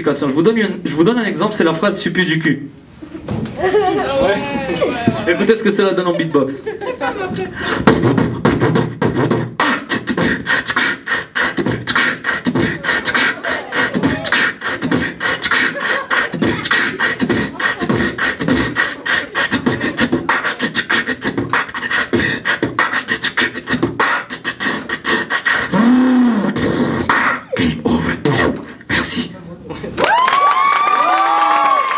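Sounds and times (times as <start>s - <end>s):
beatboxing into a microphone: 7.3s - 30.0s.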